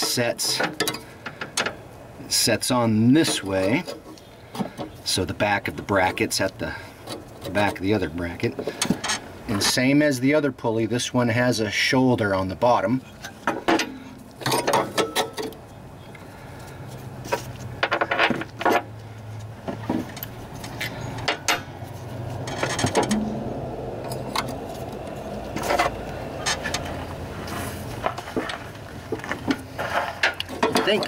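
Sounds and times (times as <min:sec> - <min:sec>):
metal clinks and knocks: 0:13.2 - 0:15.6, 0:19.7 - 0:27.1.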